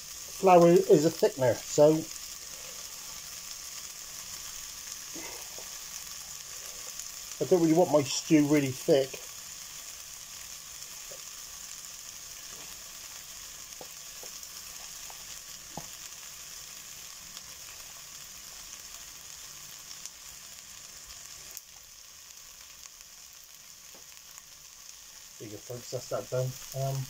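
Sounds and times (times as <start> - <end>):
onions and beef sizzling: 0.0 - 27.0.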